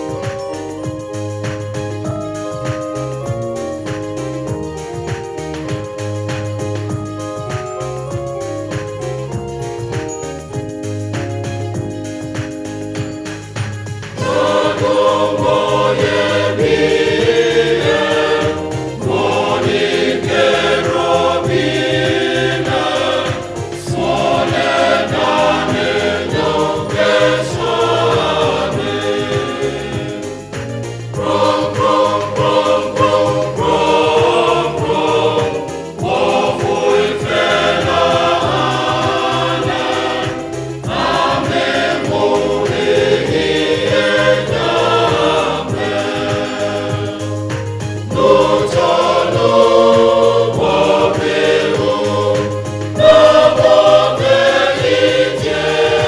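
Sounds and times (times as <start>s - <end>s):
low accompaniment: 0.0s - 56.0s
choir singing a hymn: 14.1s - 56.0s.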